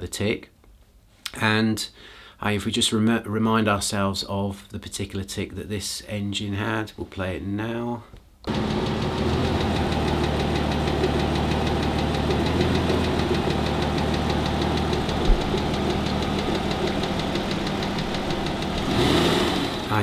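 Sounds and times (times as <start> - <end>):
car engine ticking: 8.5 - 20.0
short low thump: 14.9 - 18.8.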